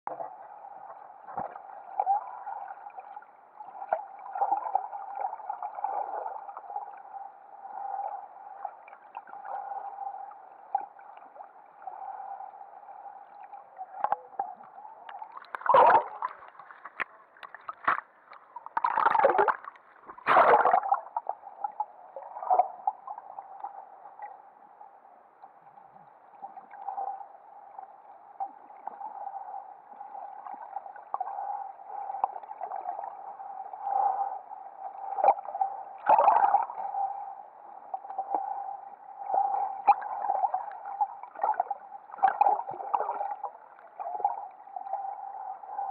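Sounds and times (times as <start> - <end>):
bubbling and gurgling water: 0.1 - 45.9
underwater hum: 0.1 - 45.9
water sloshing: 15.1 - 21.0.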